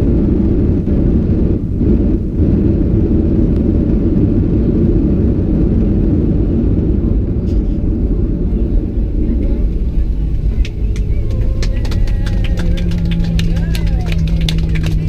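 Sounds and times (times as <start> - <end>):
jet engines rumbling: 0.0 - 15.0
wheels rolling on runway: 0.0 - 15.0.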